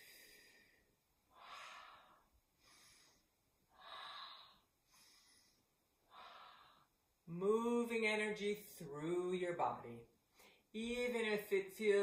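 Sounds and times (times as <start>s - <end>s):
person breathing rhythmically: 0.0s - 7.0s.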